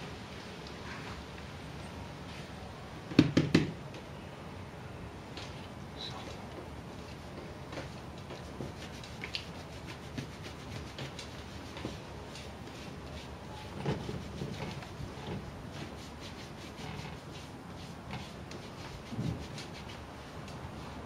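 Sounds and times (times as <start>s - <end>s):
brush strokes through dog fur: 7.0s - 21.0s.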